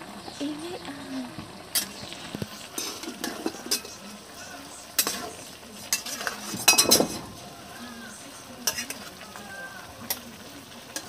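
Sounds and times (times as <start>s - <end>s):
food sizzling: 0.0s - 11.0s
metal spatula scraping a pan: 2.7s - 4.1s, 5.0s - 7.4s, 8.5s - 9.1s.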